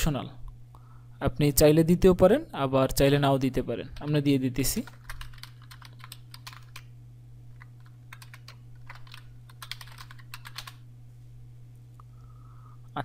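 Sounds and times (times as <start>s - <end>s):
steady low hum: 0.0s - 13.0s
keyboard typing: 4.0s - 6.9s, 7.5s - 10.8s.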